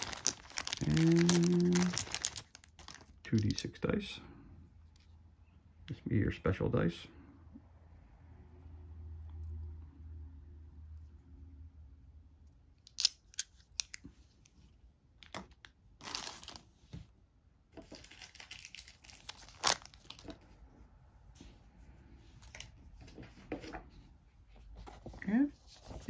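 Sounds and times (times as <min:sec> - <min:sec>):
crinkling plastic rustles: 0:00.0 - 0:03.8, 0:15.2 - 0:16.9, 0:17.8 - 0:20.5.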